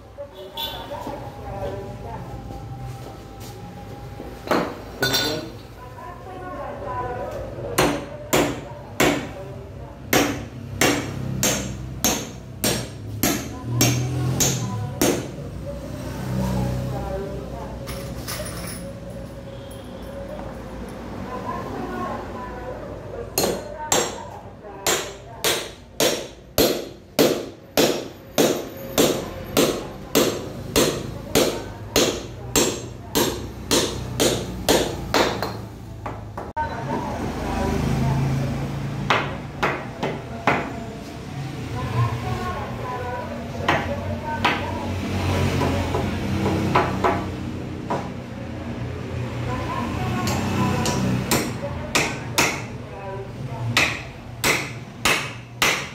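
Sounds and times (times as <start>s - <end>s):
hammer striking nail into wood: 10.1s - 15.3s, 24.8s - 35.6s, 53.8s - 55.9s.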